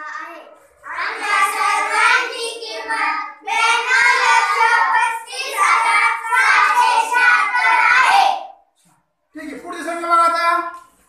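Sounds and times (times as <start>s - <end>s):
children singing: 0.2s - 8.6s.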